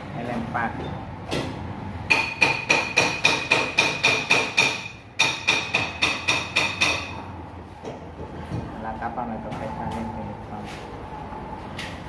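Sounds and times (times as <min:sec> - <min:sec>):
hammer striking metal: 0:01.3 - 0:07.3.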